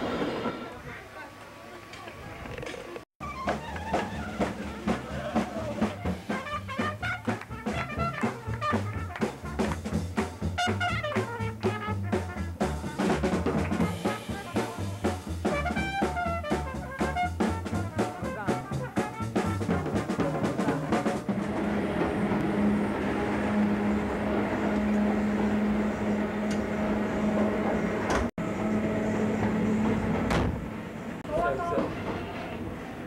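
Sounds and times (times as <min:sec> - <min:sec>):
drum kit beat: 0:03.2 - 0:22.4
jazz band playing: 0:03.2 - 0:22.9
trombone: 0:03.4 - 0:21.9.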